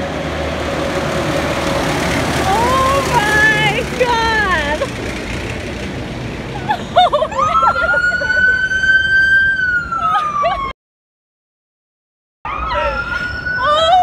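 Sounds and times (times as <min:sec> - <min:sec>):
street and engine noise: 0:00.0 - 0:10.7, 0:12.5 - 0:14.0
police siren: 0:07.0 - 0:10.8, 0:12.4 - 0:14.0.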